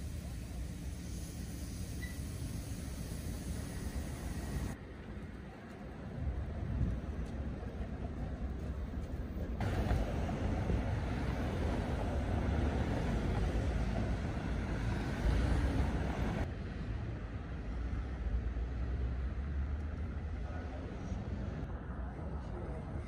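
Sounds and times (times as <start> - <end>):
low traffic rumble: 0.0 - 23.0
cars passing: 9.6 - 23.0.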